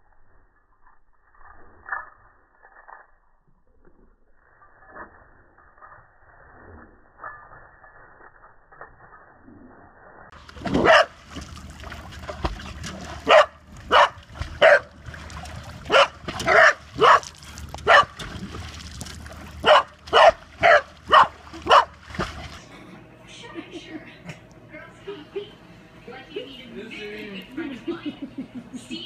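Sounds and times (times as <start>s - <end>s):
dog barking: 10.8s - 11.1s, 13.3s - 14.9s, 15.9s - 18.2s, 19.6s - 21.9s.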